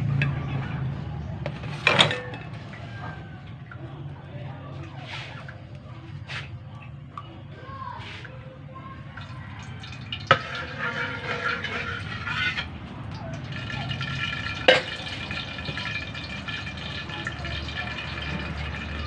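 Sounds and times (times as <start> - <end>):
metal ladle clanking on pans: 1.4 - 3.2, 9.8 - 19.0
liquid pouring into a wok: 9.1 - 19.0.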